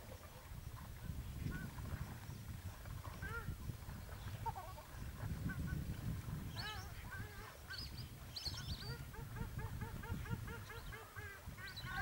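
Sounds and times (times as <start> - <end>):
ducks honking: 8.6 - 12.0.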